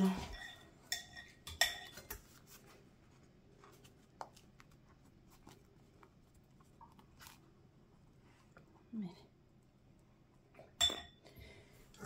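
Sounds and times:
light rubbing of food: 1.9s - 8.6s.

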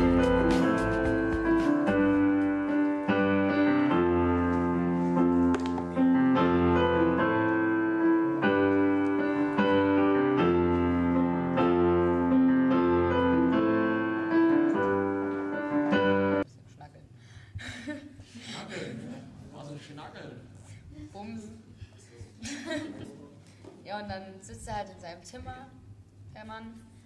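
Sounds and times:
electronic keyboard piano chords: 0.0s - 16.4s.

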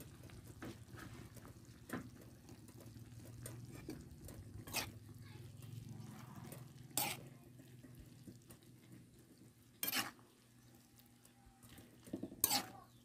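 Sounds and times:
metal spoon scraping a wok: 3.2s - 5.1s, 5.7s - 10.8s, 11.7s - 13.0s.

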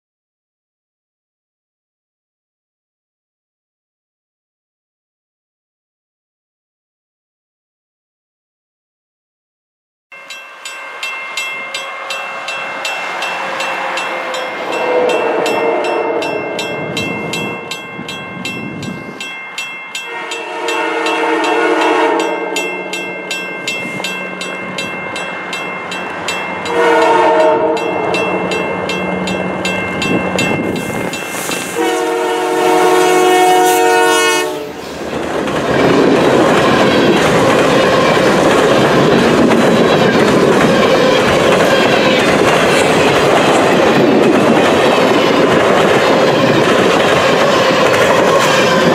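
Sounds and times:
rapidly ringing bell: 10.1s - 21.6s, 22.2s - 26.8s, 27.8s - 31.4s
train wheels clicking on rails: 11.4s - 32.2s, 34.7s - 48.9s
locomotive horn blowing: 13.4s - 16.6s, 20.1s - 23.0s, 26.7s - 28.1s, 31.6s - 34.8s.

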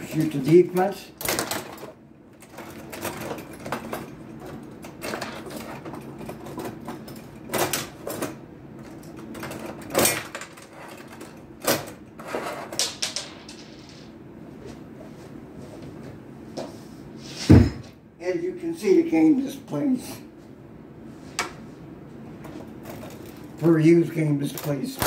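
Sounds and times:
table hockey rods clicking and rattling: 0.0s - 14.2s, 24.4s - 25.0s.

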